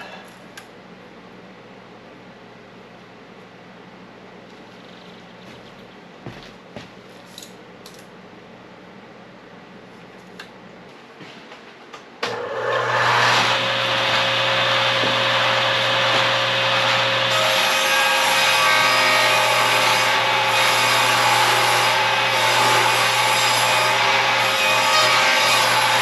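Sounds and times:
table saw running: 12.2s - 26.0s
saw cutting wooden board: 12.3s - 26.0s.

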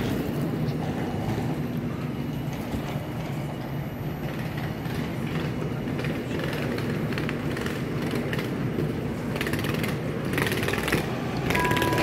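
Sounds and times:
train equipment humming: 8.4s - 12.0s.

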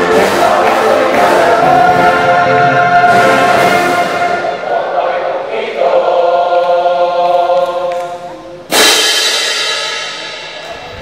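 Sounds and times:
cymbal crash: 8.7s - 11.0s.

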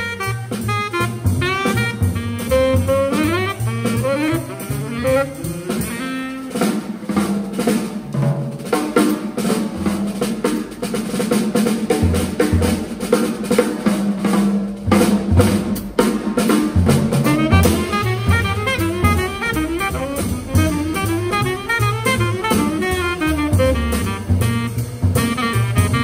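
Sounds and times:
tenor saxophone: 0.0s - 7.2s, 17.2s - 26.0s
jazz drum solo: 0.0s - 26.0s.

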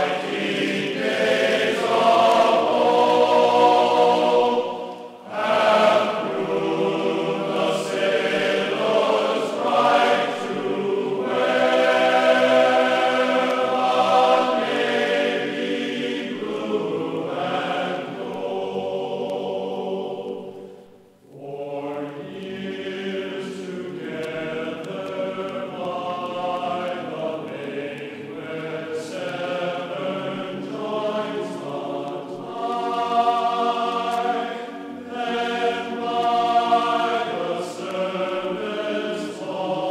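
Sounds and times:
choir singing held chords: 0.0s - 39.9s.

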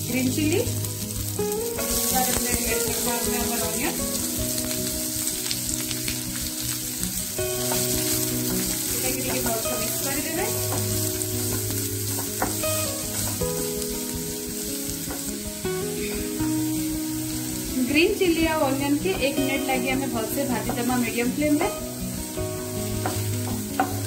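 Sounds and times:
onion sizzling in hot oil: 0.0s - 24.0s
soft background music: 0.0s - 24.0s.

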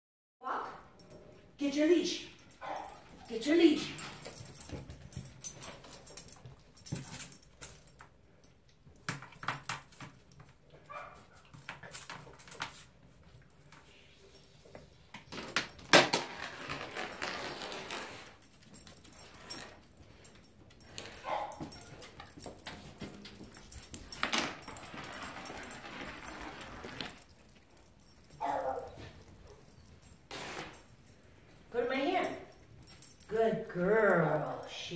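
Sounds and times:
leash knocking and rattling: 2.1s - 34.9s
dog claws clicking on floor: 2.4s - 13.9s, 14.6s - 31.0s.

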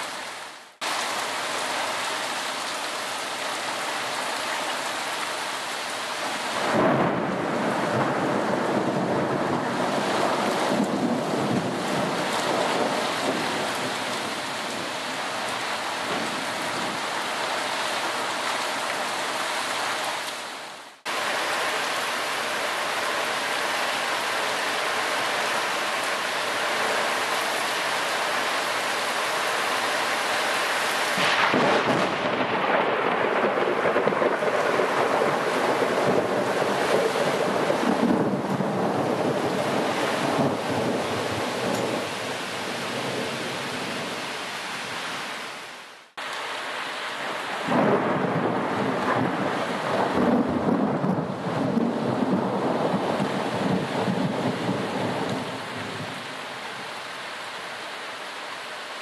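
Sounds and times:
wind gusts: 0.0s - 58.0s
heavy rain pouring: 0.0s - 59.0s
thunder rumbling: 6.6s - 17.2s, 31.2s - 43.9s, 47.6s - 56.3s.

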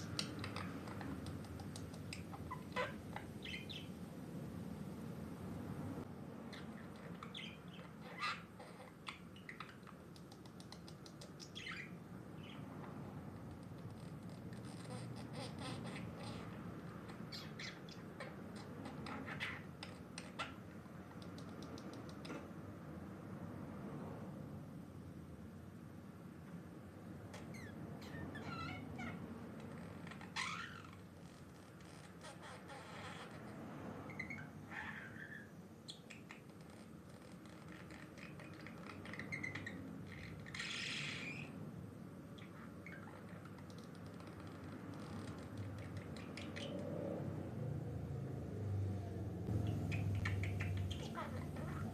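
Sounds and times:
faint clicks: 21.1s - 22.4s
budgerigar chattering: 49.6s - 51.9s.

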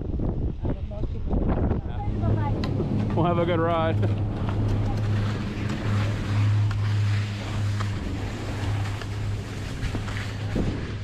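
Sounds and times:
steady low hum: 0.0s - 11.0s
wind on microphone: 0.0s - 11.0s
skis scraping icy snow: 4.0s - 11.0s.

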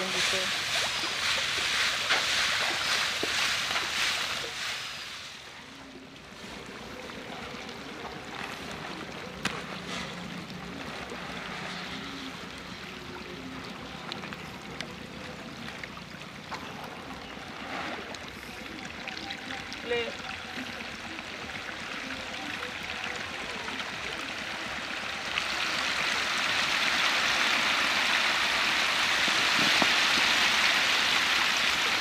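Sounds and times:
fish splashing at water surface: 0.0s - 5.4s.

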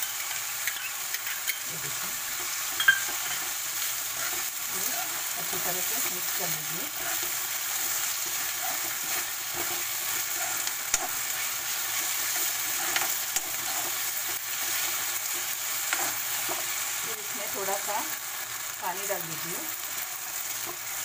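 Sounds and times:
vegetables sizzling in a pan: 0.0s - 21.0s
spatula striking pan: 2.4s - 3.6s.

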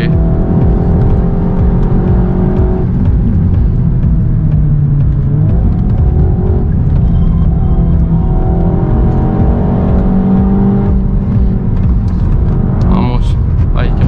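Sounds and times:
car engine pulling hard: 0.0s - 14.0s.

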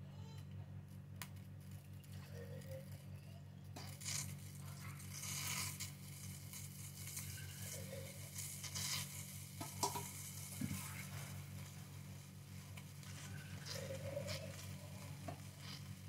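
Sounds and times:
steady low hum: 0.0s - 16.0s
milk hissing and sizzling: 3.8s - 16.0s.

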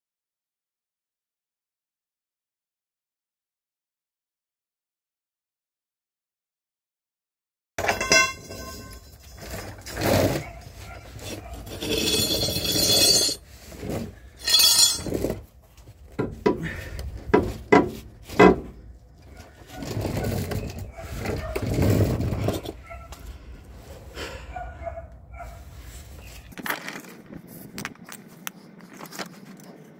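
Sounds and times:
metal tools clinking: 7.8s - 13.4s, 14.4s - 15.3s
tools scraping: 7.8s - 16.7s, 17.3s - 24.1s.

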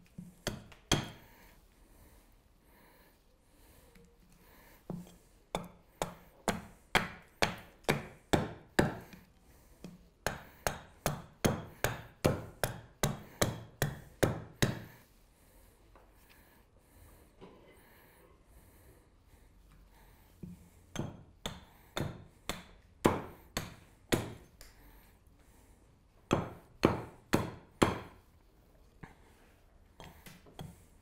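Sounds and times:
hatchet chopping wood: 0.4s - 1.3s, 5.0s - 9.3s, 10.2s - 14.9s, 20.9s - 24.5s, 26.3s - 28.2s.

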